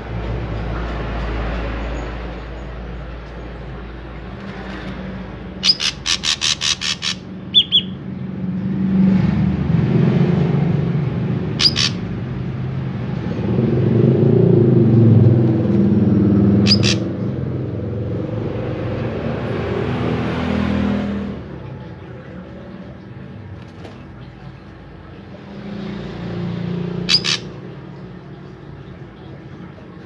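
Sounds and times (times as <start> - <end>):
bird calling sharp high notes: 5.6 - 8.0, 11.6 - 12.0, 16.6 - 17.1, 27.1 - 27.6.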